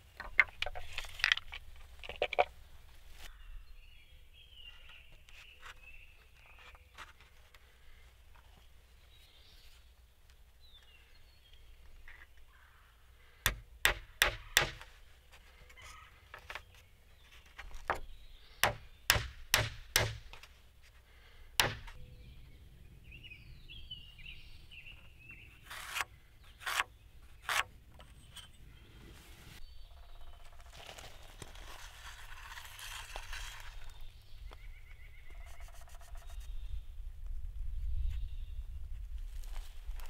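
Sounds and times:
faint birds chirping: 0.0 - 19.5, 20.5 - 38.9
hammer driving nails into wood: 13.5 - 14.9, 18.6 - 20.5, 21.6 - 22.0.

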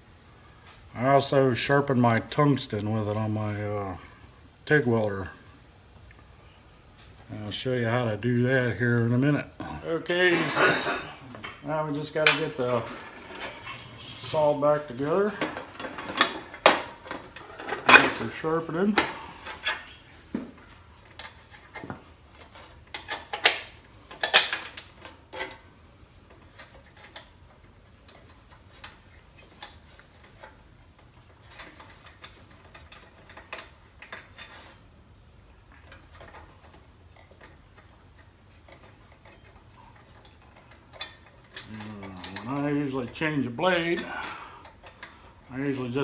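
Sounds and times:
metal clanks: 10.3 - 25.6, 35.7 - 46.0.

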